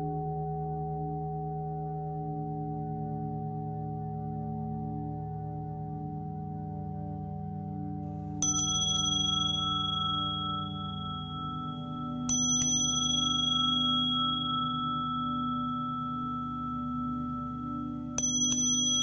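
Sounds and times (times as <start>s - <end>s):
singing bowls humming: 8.3s - 19.0s
small bright bell struck: 8.4s - 19.0s.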